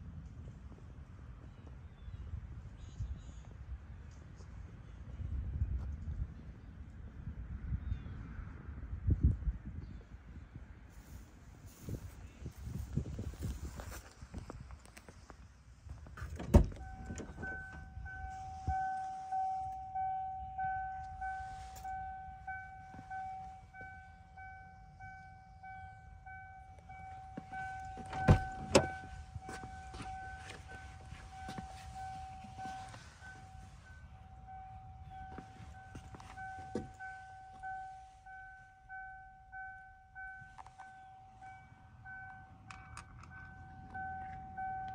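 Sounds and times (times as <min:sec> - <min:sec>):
pulsing car warning chime: 0:16.5 - 0:44.9.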